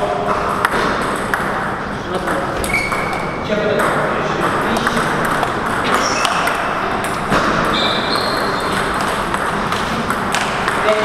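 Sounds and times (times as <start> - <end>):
table tennis ball hits: 0.3 - 11.0
high squeaks: 2.6 - 3.4, 5.8 - 7.0, 7.6 - 9.1.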